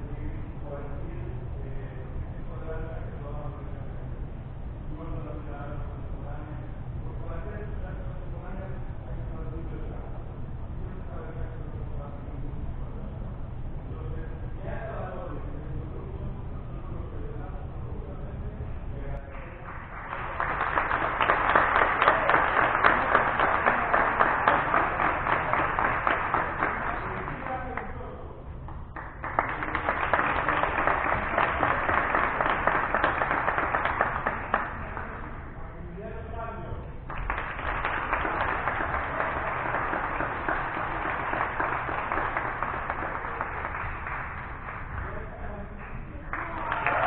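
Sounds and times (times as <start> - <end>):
group of people applauding: 19.2 - 35.6, 37.0 - 47.0.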